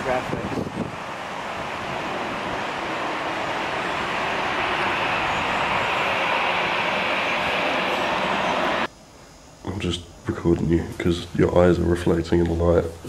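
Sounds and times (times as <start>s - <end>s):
moving vehicle rushing noise: 0.0s - 8.9s.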